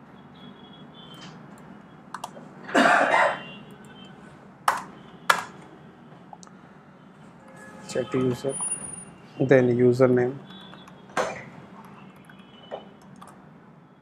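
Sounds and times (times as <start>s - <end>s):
computer keys clicking: 1.1s - 2.4s, 4.7s - 5.5s, 10.4s - 11.0s, 11.8s - 13.4s
person clearing throat: 2.7s - 3.5s.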